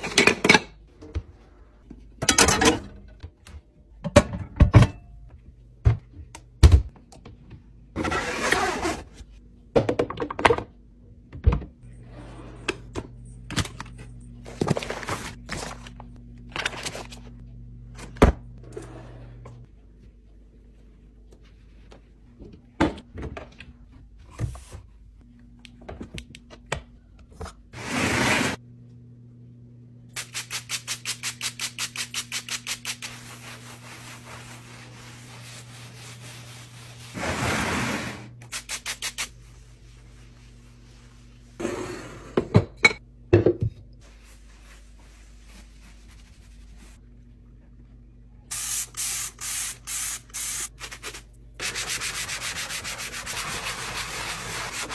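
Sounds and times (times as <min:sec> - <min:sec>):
low steady hum: 0:28.4 - 0:30.2, 0:39.3 - 0:48.5
sponge scrubbing a sink: 0:32.0 - 0:41.6, 0:44.0 - 0:47.0, 0:51.0 - 0:54.9
cloth wiping a counter: 0:32.8 - 0:38.2, 0:39.3 - 0:41.6, 0:44.0 - 0:47.0.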